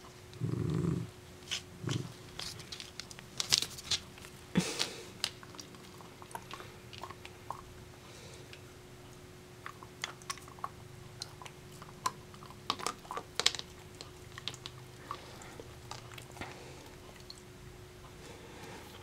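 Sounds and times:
faint steady hum: 0.0s - 19.0s
dog crunching a treat: 1.4s - 7.7s, 9.6s - 17.4s.

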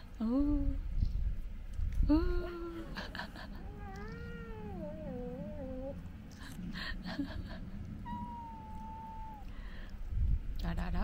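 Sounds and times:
cats growling: 3.4s - 6.2s, 7.9s - 9.6s
cat yowling: 3.6s - 6.0s, 8.0s - 9.5s.

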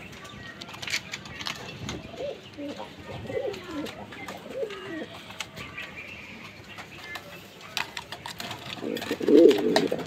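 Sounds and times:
pigeon cooing: 2.0s - 5.8s, 8.0s - 10.0s.

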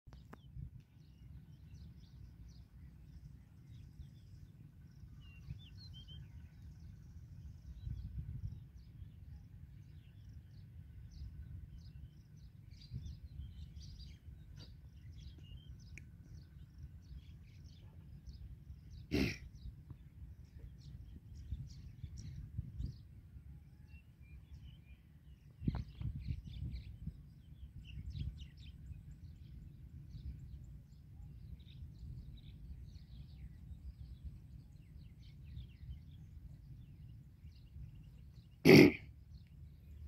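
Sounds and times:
low steady rumble: 0.1s - 40.0s
small birds chirping: 0.1s - 40.0s.

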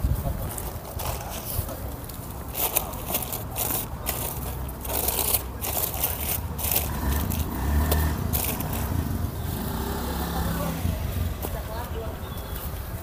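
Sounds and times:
soil crunching: 0.4s - 9.6s
plastic bag crinkling: 2.1s - 9.0s.

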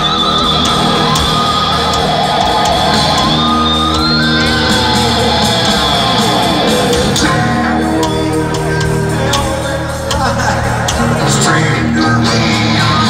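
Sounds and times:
amplified rock music: 0.0s - 13.0s
crowd shouting along: 0.0s - 13.0s.

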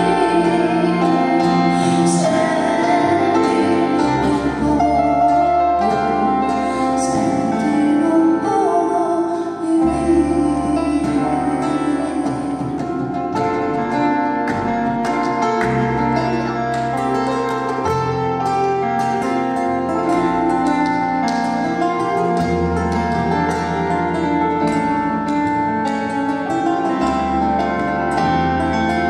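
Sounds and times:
woman singing: 0.0s - 14.0s
acoustic guitar: 0.0s - 29.0s
electric keyboard: 0.0s - 29.0s.

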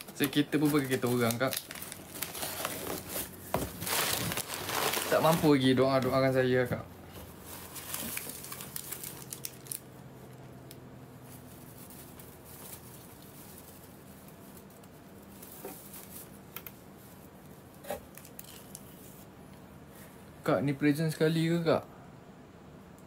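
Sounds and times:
cardboard and paper rustling: 0.0s - 6.4s, 7.2s - 9.8s
small crackles and clicks: 7.8s - 9.8s.

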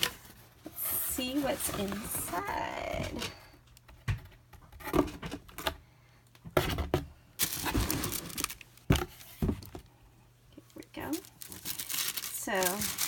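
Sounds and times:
tissue paper rustling: 0.0s - 2.9s, 7.4s - 9.4s, 11.0s - 13.0s.

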